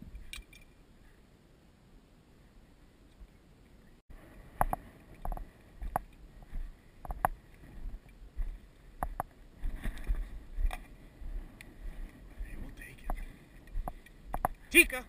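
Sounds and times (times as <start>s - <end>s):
footsteps through dry grass: 4.7s - 14.8s.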